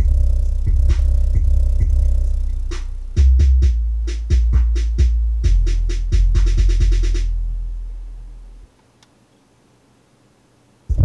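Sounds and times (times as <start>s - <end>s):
drum-machine beat: 0.0s - 7.6s
deep bass notes: 0.0s - 8.7s.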